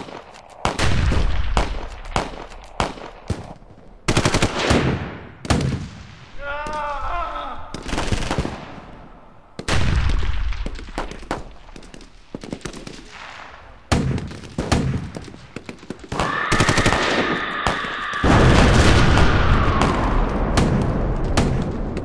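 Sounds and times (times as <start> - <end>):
deep rumble of blasts: 16.2 - 22.0.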